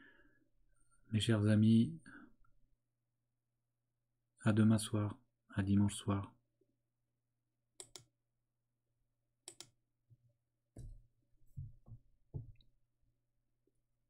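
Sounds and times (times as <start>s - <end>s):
soft knocks at a desk: 10.8s - 11.0s, 11.6s - 12.6s.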